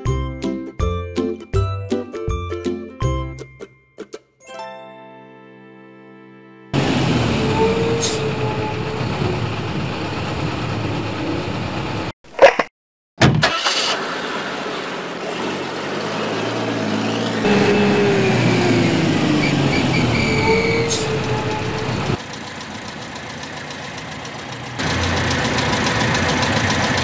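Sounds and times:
motor vehicle engine running: 6.8 - 12.1, 14.5 - 27.0.

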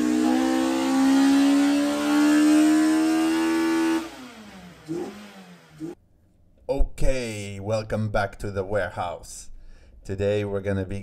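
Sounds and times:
car engine revving high: 0.0 - 6.0.

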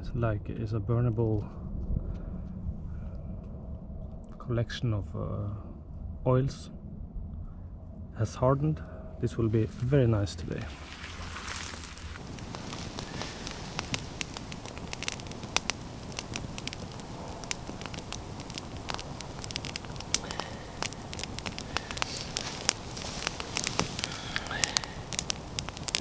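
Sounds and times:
campfire crackling: 9.5 - 26.0
sharp pops of fire: 10.5 - 26.0.

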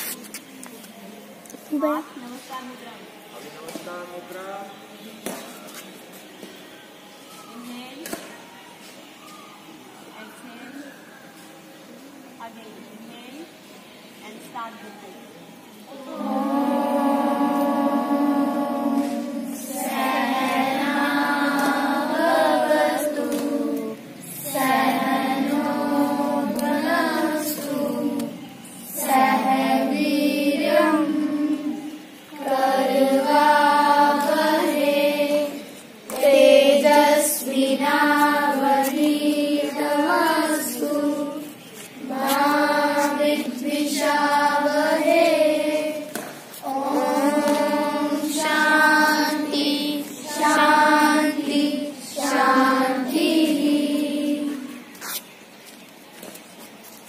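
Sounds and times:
children chanting in unison: 15.9 - 54.9.

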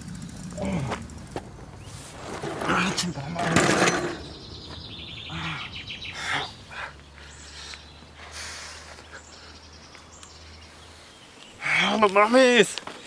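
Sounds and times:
steady low hum: 0.0 - 8.6
birds chirping: 0.0 - 13.0
low grunt: 0.5 - 1.1.

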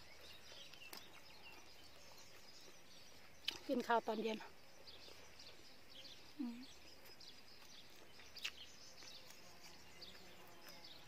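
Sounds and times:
faint bird chirps: 0.0 - 11.0
person humming while eating: 6.4 - 6.7.

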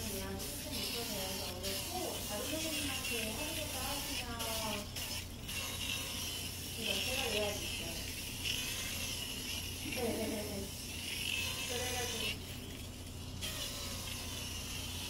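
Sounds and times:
foot drill sanding skin hiss: 0.0 - 10.0.

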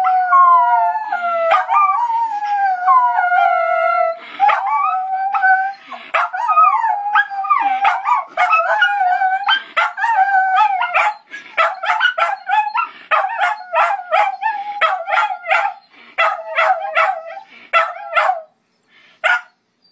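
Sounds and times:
dogs howling: 0.0 - 18.4
dogs yipping: 1.5 - 2.0, 4.4 - 18.5, 19.2 - 19.9.

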